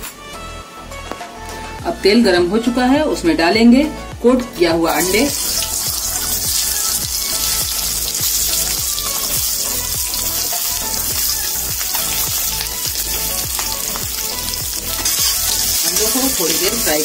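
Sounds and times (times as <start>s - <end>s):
hot oil sizzling and crackling: 4.8s - 17.0s.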